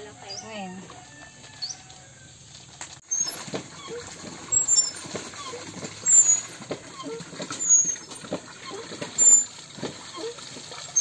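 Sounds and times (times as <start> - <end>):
hands washing clothes in water: 3.0 - 11.0.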